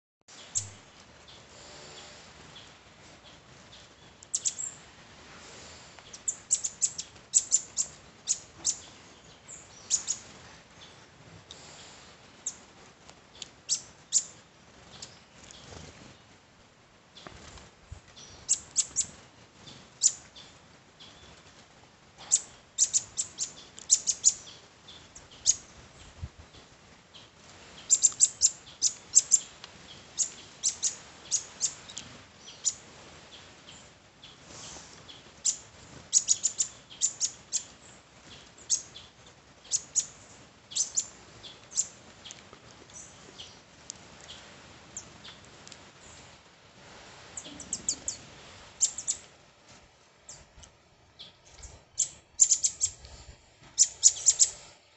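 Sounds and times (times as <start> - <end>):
birds chirping: 0.3 - 4.8, 5.6 - 12.6, 13.3 - 16.3, 22.2 - 45.4, 47.4 - 49.3, 50.2 - 53.0, 53.7 - 54.7.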